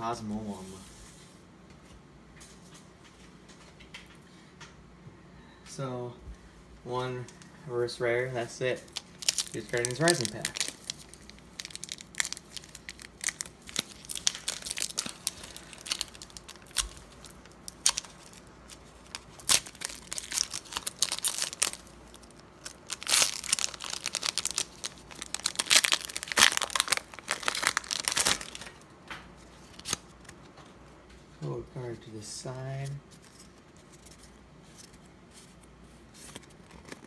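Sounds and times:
foil wrapper tearing and crinkling: 8.8s - 28.8s, 29.5s - 30.4s.

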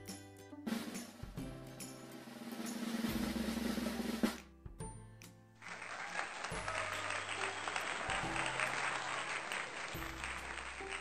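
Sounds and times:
background music: 0.0s - 11.0s
applause: 5.6s - 11.0s.

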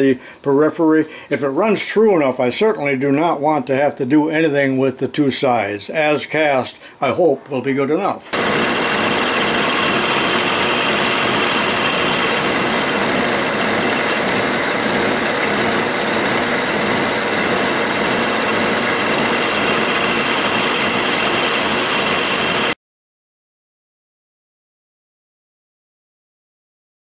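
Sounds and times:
metal lathe cutting with high whine: 8.3s - 22.8s.

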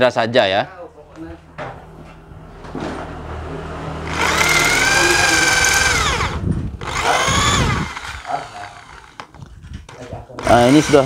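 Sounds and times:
electric drill whining: 4.1s - 9.5s, 10.4s - 11.0s.

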